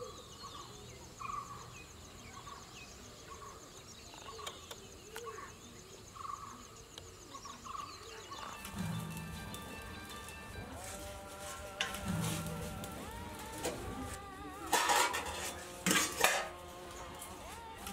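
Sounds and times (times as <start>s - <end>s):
chickens clucking: 7.5s - 17.9s.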